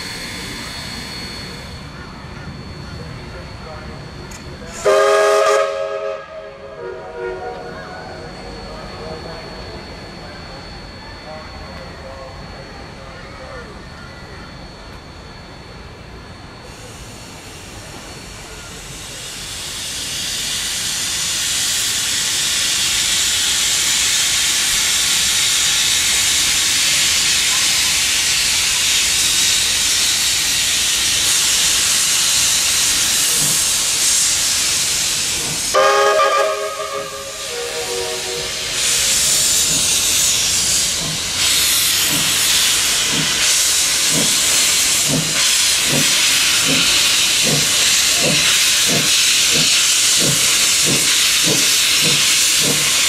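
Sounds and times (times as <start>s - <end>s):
steam locomotive hissing: 0.0s - 53.0s
steam whistle blast: 4.8s - 7.8s, 35.7s - 39.1s.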